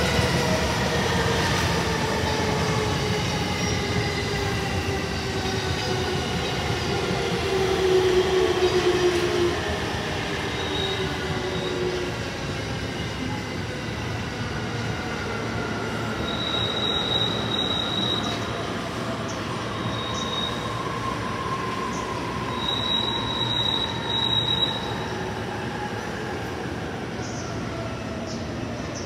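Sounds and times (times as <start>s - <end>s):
train running noise: 0.0s - 29.0s
train wheels squealing on rails: 0.0s - 29.0s.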